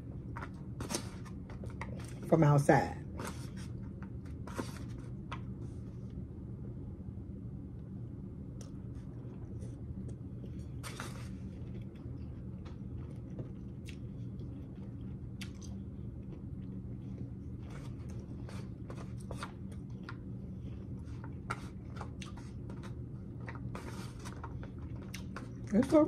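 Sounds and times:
steady low hum: 0.0s - 26.0s
chewing crunchy raw vegetables: 11.5s - 25.7s.

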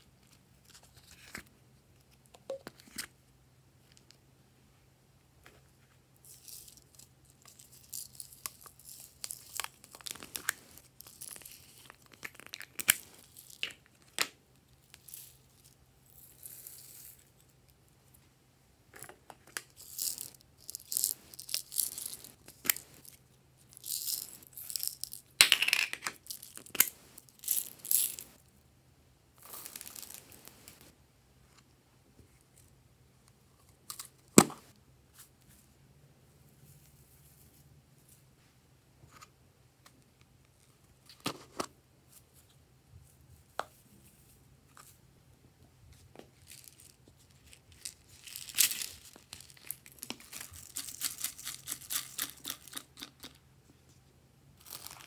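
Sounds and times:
plastic eggs clicking and rattling: 47.7s - 53.4s.

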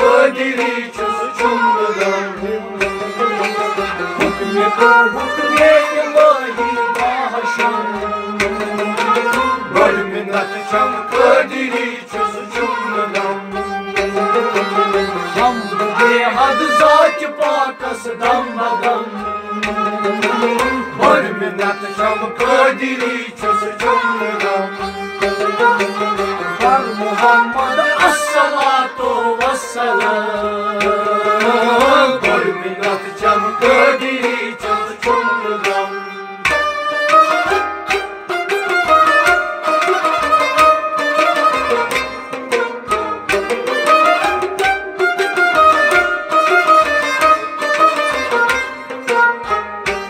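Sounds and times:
hand drum rhythm: 0.0s - 12.4s, 18.2s - 35.5s, 36.5s - 46.3s
harmonium: 0.0s - 50.0s
rabab: 0.0s - 50.0s
sarangi: 0.0s - 50.0s.

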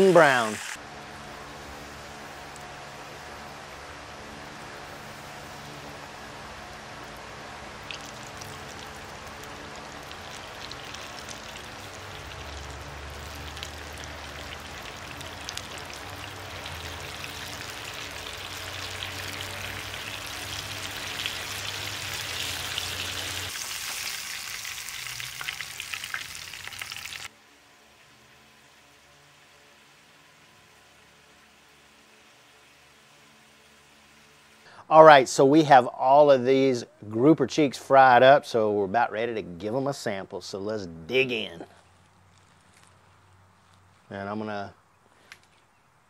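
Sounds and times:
fish deep-frying in oil: 7.8s - 27.3s
oil popping and crackling: 7.8s - 27.3s.

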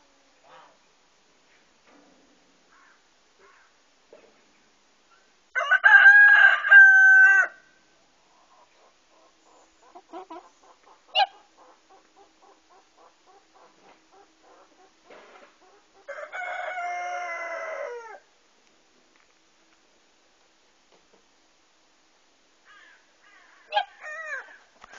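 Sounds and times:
rooster crowing: 5.6s - 7.8s, 16.0s - 18.3s, 22.7s - 24.6s
faint clucking: 8.3s - 16.1s.

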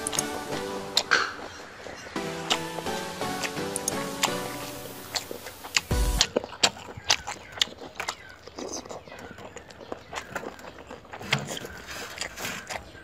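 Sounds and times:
chewing and lip smacks: 5.0s - 13.0s.

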